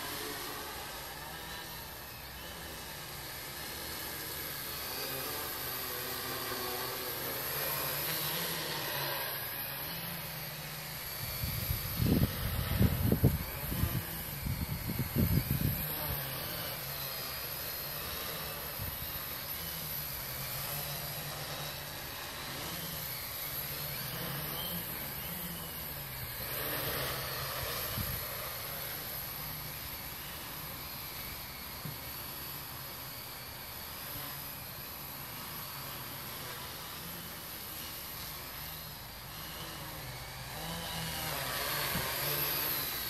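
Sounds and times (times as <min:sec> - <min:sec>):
quadcopter propellers buzzing: 0:00.0 - 0:43.0
wind rumble on microphone: 0:11.2 - 0:16.3, 0:27.6 - 0:28.4.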